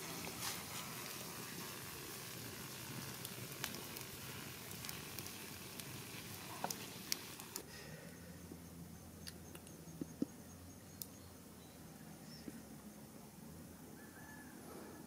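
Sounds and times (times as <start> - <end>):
food sizzling over a fire: 0.0 - 7.6
sharp pops and crackles: 0.0 - 7.7.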